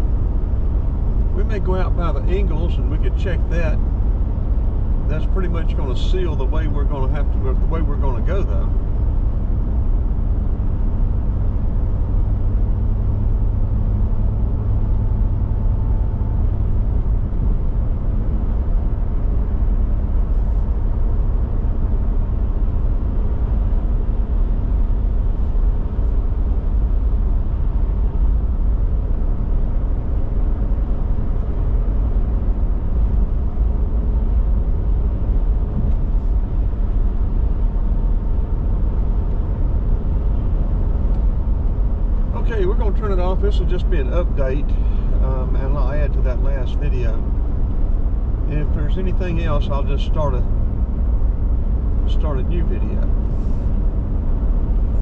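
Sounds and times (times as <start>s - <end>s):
car road noise: 0.0s - 55.0s.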